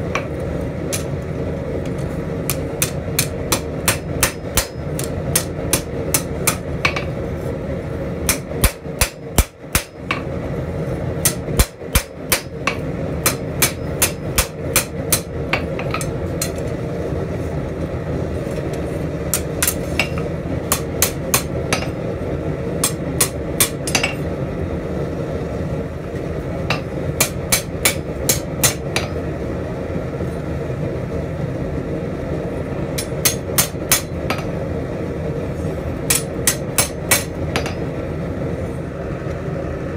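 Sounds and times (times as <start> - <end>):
hammer striking metal on anvil: 2.5 - 7.2, 8.2 - 10.3, 11.2 - 16.6, 19.3 - 22.0, 22.8 - 24.2, 26.7 - 29.2, 33.0 - 34.5, 36.1 - 37.9.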